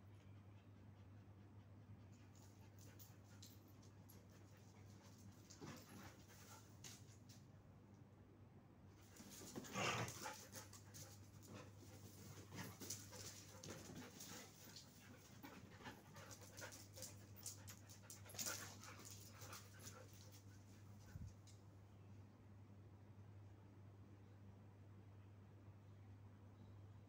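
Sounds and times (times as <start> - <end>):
dog panting: 9.2 - 21.4.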